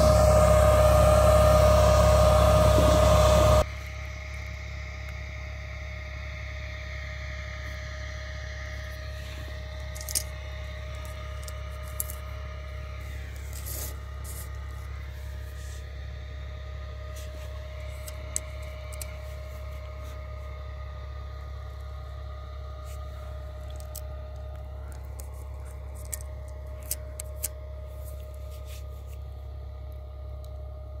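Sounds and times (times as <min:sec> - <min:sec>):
faint constant tone: 0:00.0 - 0:31.0
steady low hum: 0:00.0 - 0:31.0.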